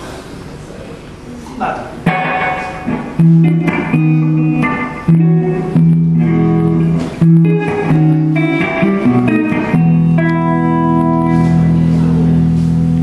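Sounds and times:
guitar chords ringing: 2.0 - 13.0.

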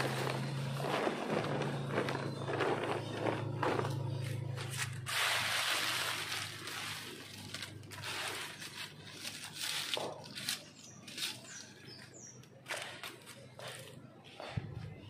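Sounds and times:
dry leaves rustling and crackling: 0.0 - 12.0.

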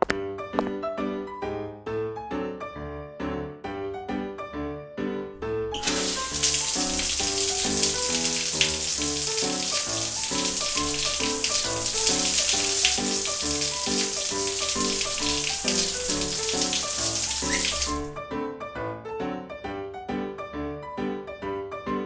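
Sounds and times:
shower water spraying: 5.7 - 18.2.

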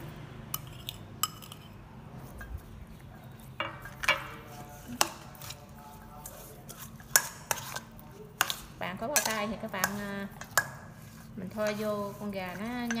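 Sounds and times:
metal spoon knocking on steel bowl: 8.4 - 10.8.

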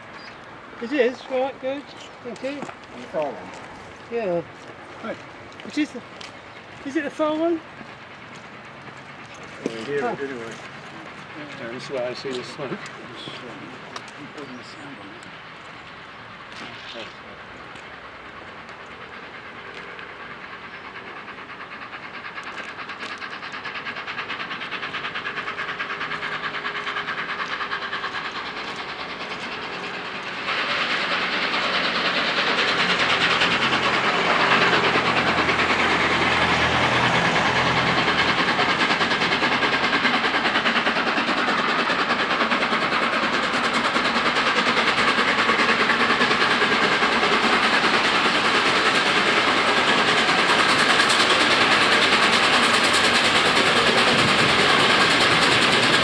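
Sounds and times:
steam locomotive approaching: 0.0 - 56.0.

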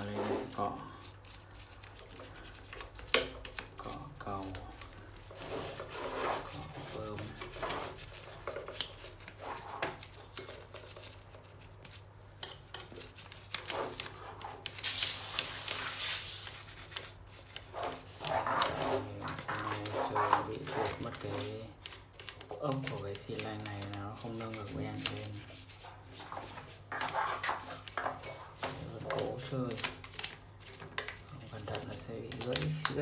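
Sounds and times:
toothbrush scrubbing: 0.0 - 33.0
loud hiss: 14.8 - 16.5.

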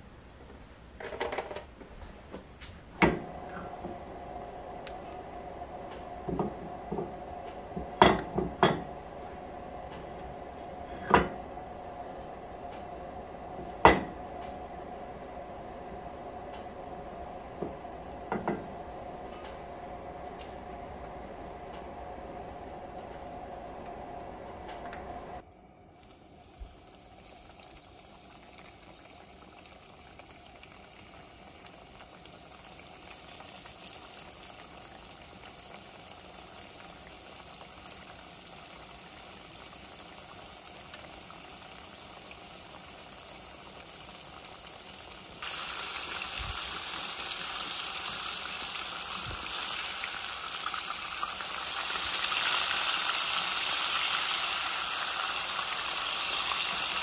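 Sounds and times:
fish sizzling in hot oil: 26.0 - 57.0.

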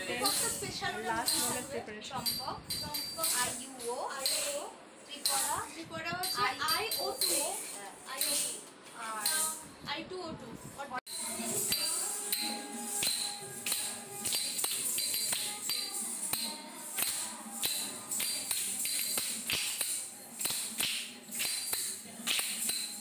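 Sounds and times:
metallic jingles: 0.0 - 9.6
classical indian dance music: 11.2 - 23.0.

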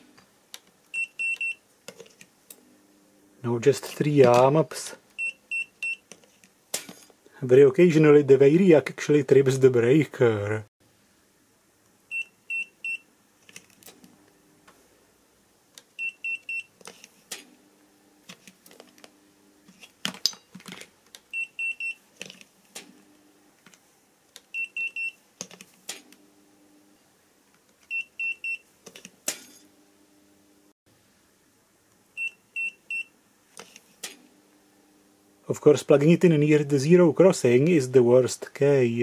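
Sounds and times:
clamp meter triple beeps: 0.9 - 1.6, 5.2 - 6.0, 24.6 - 25.2.

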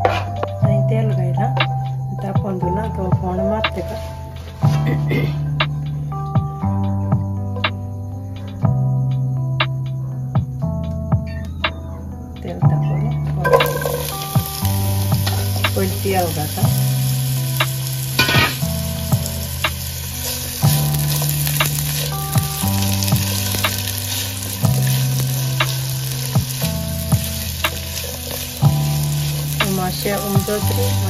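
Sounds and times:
onions sizzling in oil: 13.4 - 31.0.

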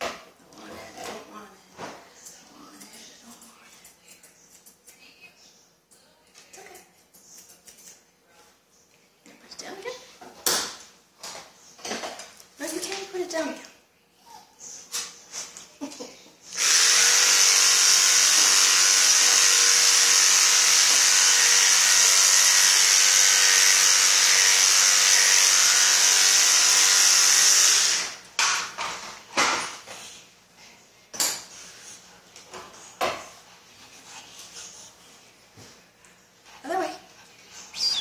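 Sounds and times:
electric pet clippers running: 16.5 - 28.3.

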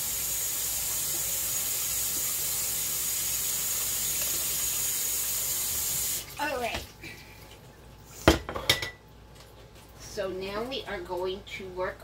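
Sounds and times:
faucet water running into sink: 0.0 - 6.9.

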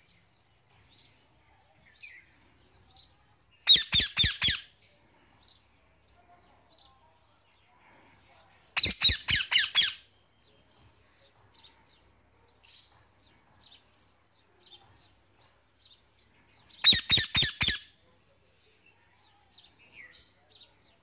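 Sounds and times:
faint bird chirps: 0.0 - 21.0
parrot calling loudly: 8.8 - 10.0.

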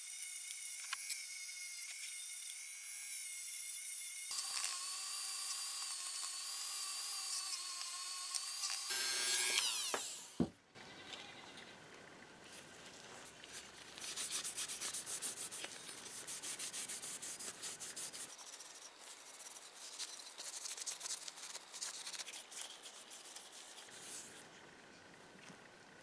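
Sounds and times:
cloth rubbing on metal: 13.0 - 24.3.

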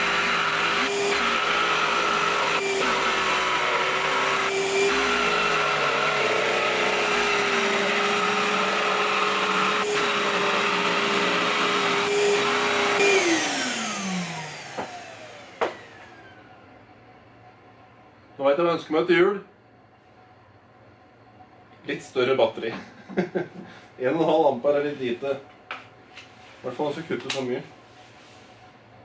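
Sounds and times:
jigsaw cutting wood: 0.0 - 16.0
shop vacuum running: 0.0 - 19.4, 21.2 - 29.0.

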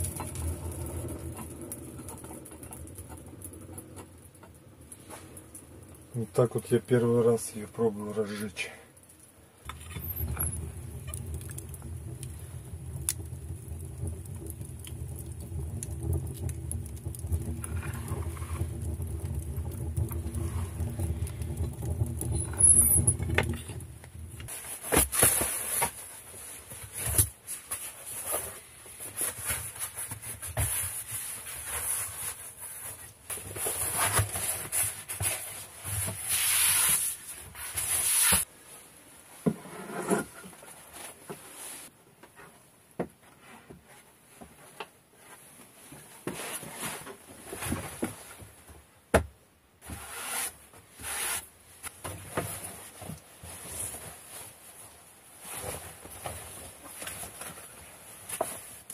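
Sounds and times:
wood stove rumbling: 0.0 - 27.4.

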